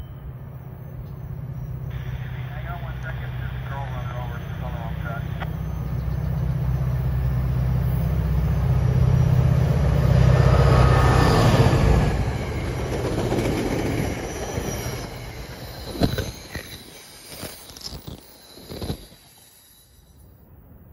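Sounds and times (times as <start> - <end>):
locomotive drone: 0.0 - 20.9
train wheels rumbling over rails: 1.0 - 17.3
wheels squealing: 5.5 - 20.3.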